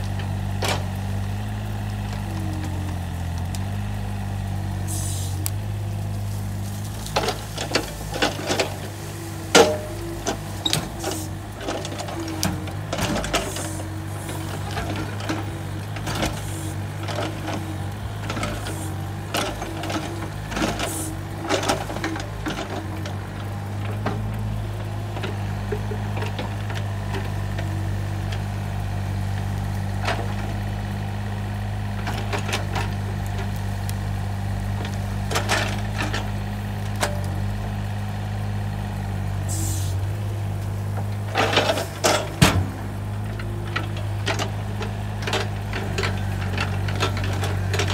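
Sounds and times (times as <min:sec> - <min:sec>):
diesel excavator engine running: 0:00.0 - 0:47.9
dirt dropped into steel trailer: 0:06.0 - 0:17.6, 0:41.2 - 0:47.9.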